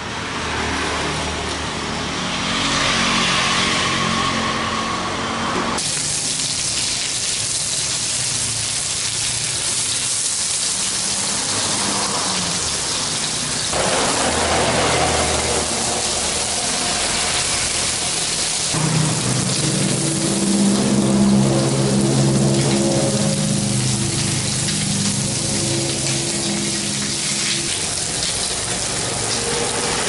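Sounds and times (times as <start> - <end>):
fish sizzling in oil: 5.8 - 30.0.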